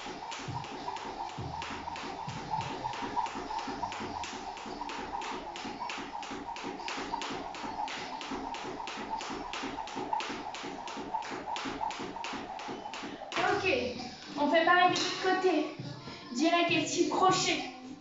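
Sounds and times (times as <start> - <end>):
jump rope clicking on tiles: 0.0 - 15.2.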